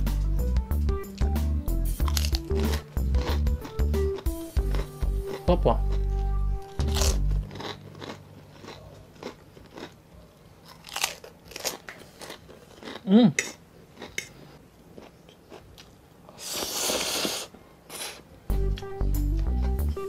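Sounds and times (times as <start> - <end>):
crunchy chewing: 2.0 - 18.2
person humming: 13.1 - 13.4
slurping noodles: 16.4 - 18.2.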